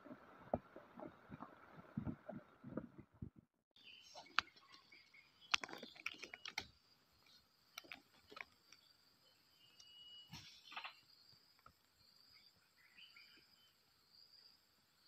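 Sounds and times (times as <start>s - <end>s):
low thumps: 0.0s - 3.5s.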